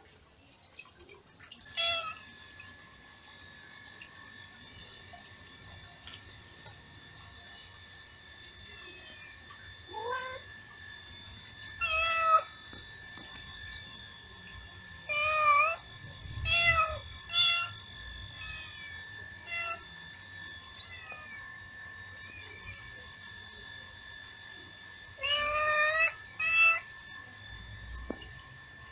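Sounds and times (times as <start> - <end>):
cat meowing: 25.2 - 26.8.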